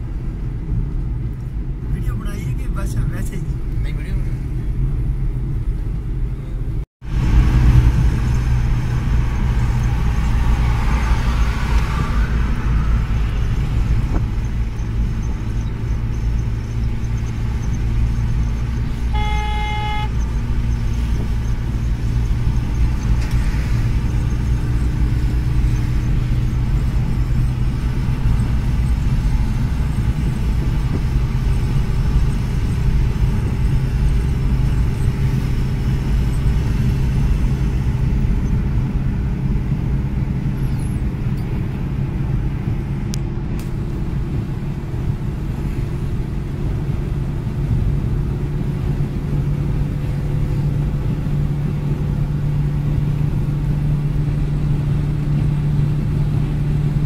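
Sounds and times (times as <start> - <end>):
car engine and road rumble: 0.0 - 57.0
vehicle horn: 19.0 - 20.2.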